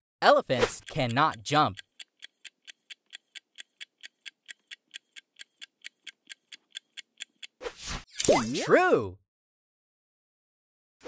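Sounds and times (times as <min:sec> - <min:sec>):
clock-like timer ticks: 0:00.2 - 0:07.6.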